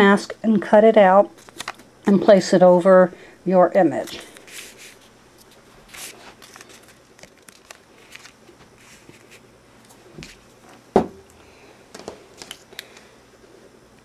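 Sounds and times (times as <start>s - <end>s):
paper rustling: 4.1s - 9.4s
thump on table: 11.0s - 11.2s.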